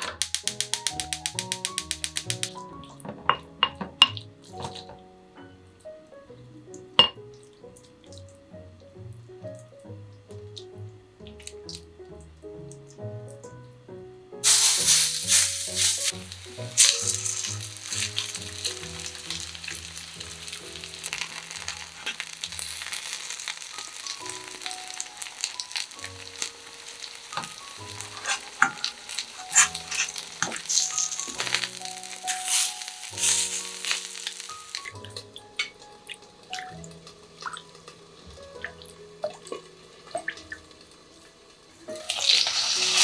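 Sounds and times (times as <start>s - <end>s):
metal turner clicks: 0.0s - 2.6s
patties sizzling in oil: 0.0s - 5.1s, 14.4s - 43.0s.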